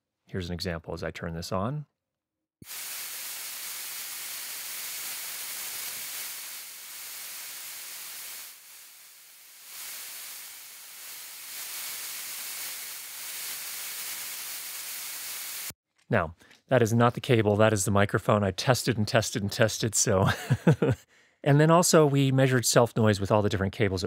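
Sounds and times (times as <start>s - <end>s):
static hiss: 2.6s - 15.8s.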